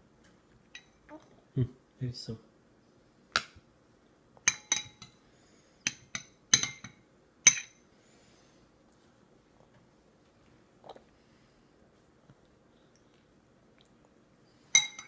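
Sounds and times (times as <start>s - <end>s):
metal spoon clinking on bowl: 5.9s - 7.8s, 14.8s - 15.0s.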